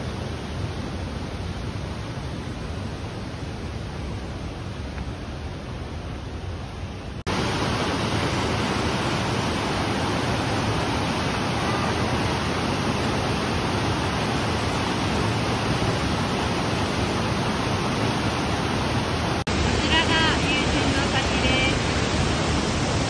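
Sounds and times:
waterfall rushing into pool: 7.2s - 23.0s.

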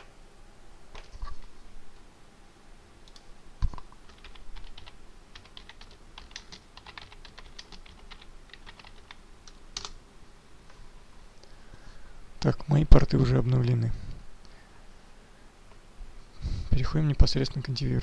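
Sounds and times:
computer keyboard typing: 3.1s - 9.2s, 9.8s - 10.0s.

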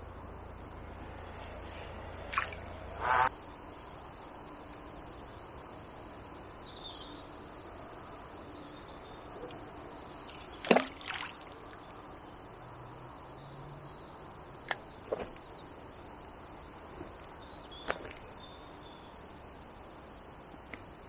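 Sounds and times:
fishing weight plopping into water: 10.4s - 11.8s.

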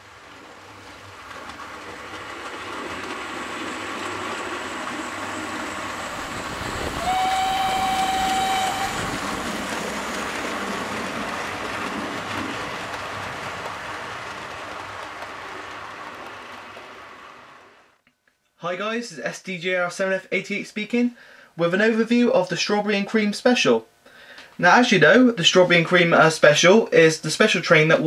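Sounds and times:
steam train running: 0.0s - 17.9s
train whistle blast: 6.8s - 9.3s.

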